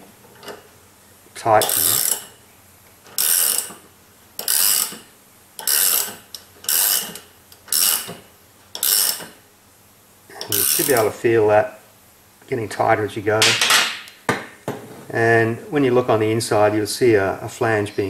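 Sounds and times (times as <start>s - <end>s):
ratcheting spanner clicking: 1.6s - 2.4s, 3.0s - 3.8s, 4.4s - 9.4s, 10.4s - 11.1s.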